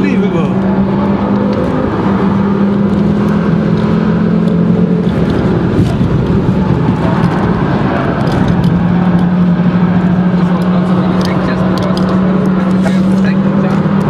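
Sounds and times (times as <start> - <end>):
loud car engine: 0.0 - 14.0
road and wind noise: 0.0 - 14.0.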